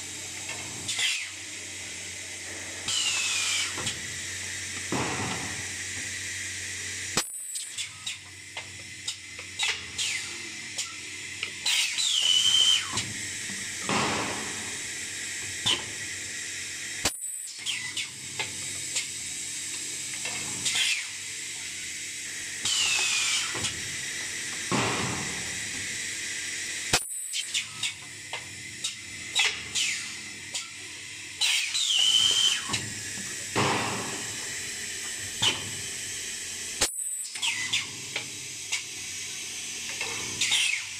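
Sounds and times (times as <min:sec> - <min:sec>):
pneumatic cylinders clicking: 0:00.4 - 0:01.4, 0:02.8 - 0:04.1, 0:07.2 - 0:14.9, 0:15.5 - 0:16.0, 0:17.0 - 0:19.2, 0:20.1 - 0:21.7, 0:22.6 - 0:26.0, 0:26.9 - 0:30.8, 0:31.4 - 0:35.9, 0:36.8 - 0:38.9, 0:39.9 - 0:40.9.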